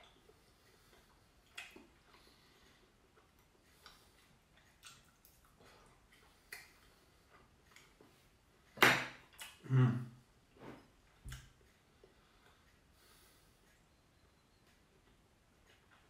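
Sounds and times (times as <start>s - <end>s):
person making low vocal sound: 9.6s - 10.2s.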